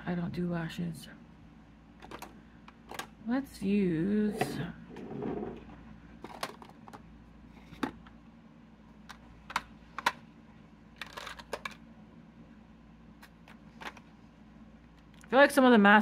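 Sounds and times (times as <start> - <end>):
plastic containers clicking: 2.0 - 3.1, 6.2 - 7.0, 9.1 - 10.2, 11.0 - 11.8.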